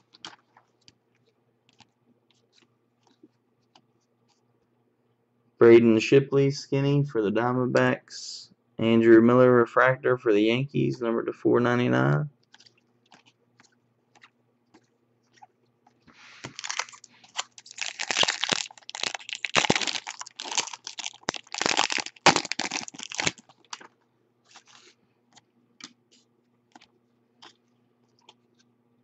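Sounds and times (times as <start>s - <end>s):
foil wrapper tearing and crinkling: 16.4s - 23.9s.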